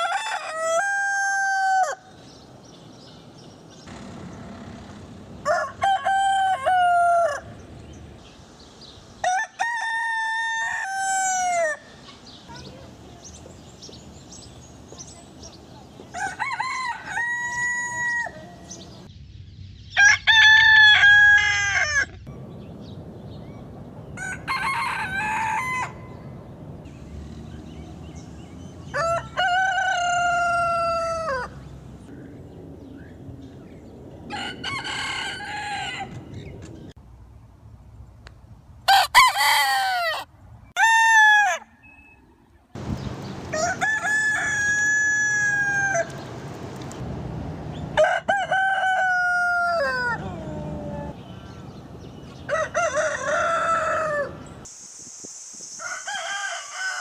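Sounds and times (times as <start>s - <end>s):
roosters crowing: 0.0s - 2.3s, 3.7s - 8.0s, 9.2s - 12.1s, 15.9s - 19.1s, 19.9s - 22.3s, 24.1s - 26.4s, 27.2s - 31.8s, 34.3s - 36.5s, 38.9s - 42.0s, 42.8s - 46.4s, 47.9s - 54.7s, 55.7s - 57.0s.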